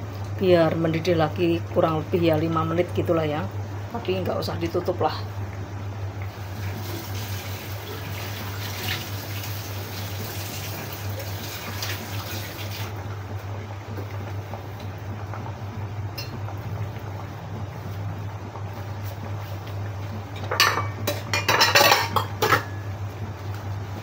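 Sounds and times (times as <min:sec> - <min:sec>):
steady low hum: 0:00.0 - 0:08.9, 0:12.9 - 0:24.0
sauce bubbling in a wok: 0:05.4 - 0:20.4.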